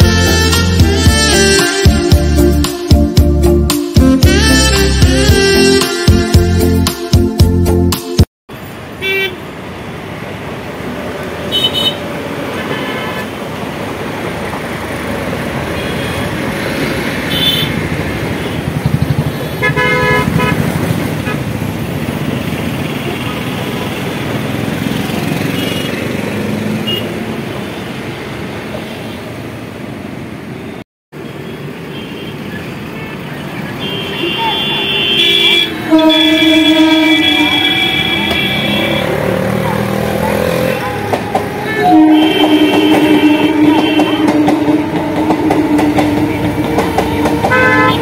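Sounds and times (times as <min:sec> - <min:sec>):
road traffic: 0:00.0 - 0:48.0
vehicle horn toots: 0:11.5 - 0:12.0, 0:17.3 - 0:17.8, 0:19.5 - 0:21.4, 0:33.8 - 0:39.3, 0:41.6 - 0:45.0, 0:47.4 - 0:48.0
electric train rumbling past: 0:13.2 - 0:25.6, 0:35.7 - 0:48.0
train wheels clacking: 0:42.3 - 0:48.0.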